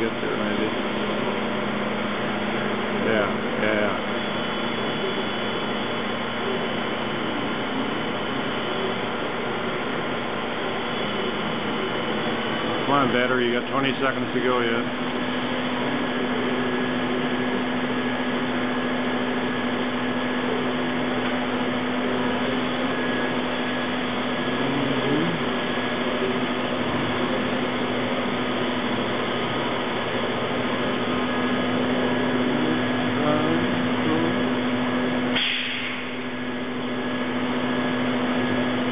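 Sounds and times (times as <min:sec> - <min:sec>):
lathe mechanical hum: 0:00.0 - 0:38.9
whines of machine drives: 0:00.0 - 0:38.9
brief hiss: 0:35.4 - 0:36.1.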